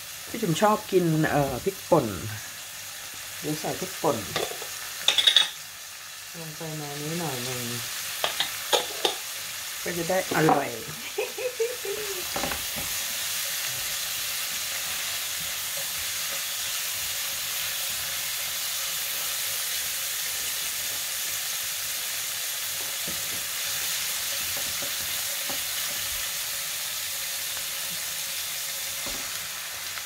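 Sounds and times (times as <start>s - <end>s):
oil sizzling in a frying pan: 0.0s - 30.0s
spatula scraping a pan: 8.2s - 9.2s.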